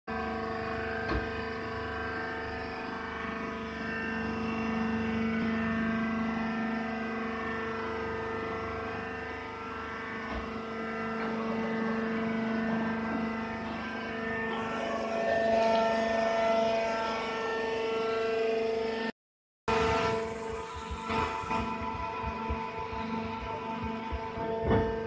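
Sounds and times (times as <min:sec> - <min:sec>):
hydraulic pump motor humming: 0:00.1 - 0:19.1, 0:19.7 - 0:25.0.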